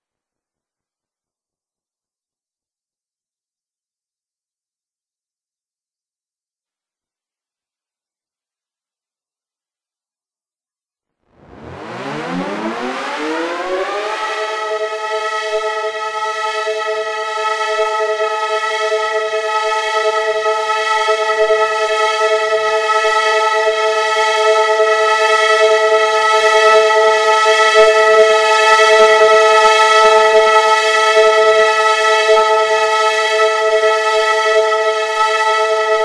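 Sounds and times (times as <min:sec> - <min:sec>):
two-tone siren winding up: 0:11.4 - 0:18.1.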